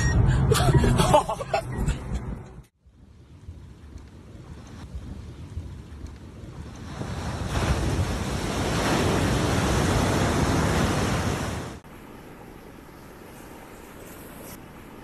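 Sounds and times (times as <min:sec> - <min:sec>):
wind buffeting microphone: 0:02.8 - 0:11.7
sea waves breaking: 0:04.3 - 0:15.0.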